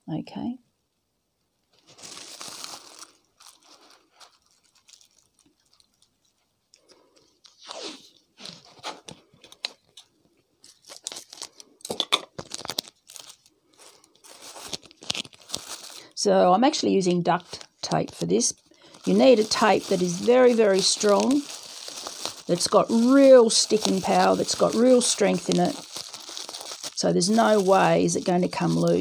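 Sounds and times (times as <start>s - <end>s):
plastic bag crinkling: 1.7s - 29.0s
duct tape tearing: 14.5s - 15.6s, 19.1s - 29.0s.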